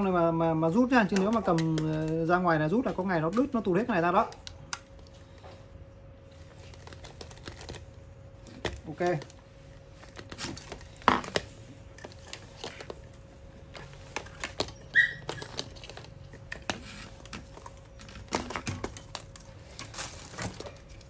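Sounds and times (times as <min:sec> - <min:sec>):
plastic connectors clicking: 0:00.9 - 0:03.6.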